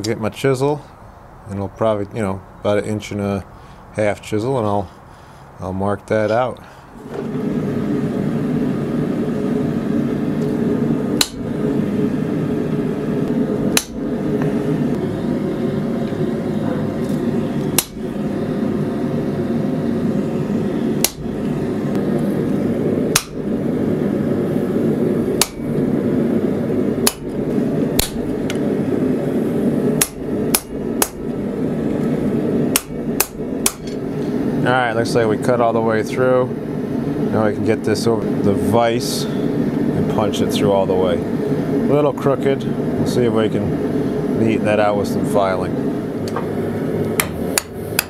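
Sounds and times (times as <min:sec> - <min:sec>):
steady low hum: 0:00.0 - 0:48.0
hammer striking chisel on hot steel: 0:11.2 - 0:11.4, 0:13.7 - 0:14.5, 0:17.7 - 0:18.0, 0:21.0 - 0:21.3, 0:23.1 - 0:23.4, 0:25.4 - 0:25.8, 0:27.0 - 0:27.4, 0:28.0 - 0:28.6, 0:30.0 - 0:31.3, 0:32.7 - 0:34.0, 0:47.2 - 0:48.0.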